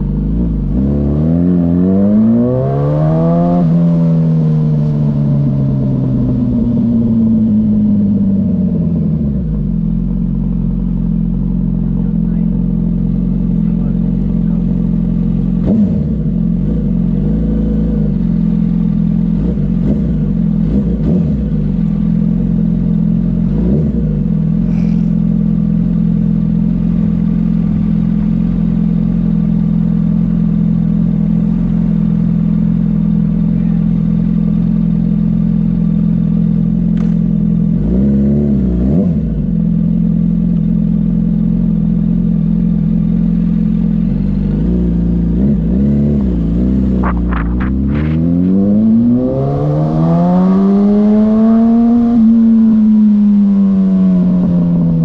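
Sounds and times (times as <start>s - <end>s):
motorcycle engine idling: 5.0s - 37.8s, 39.2s - 48.2s.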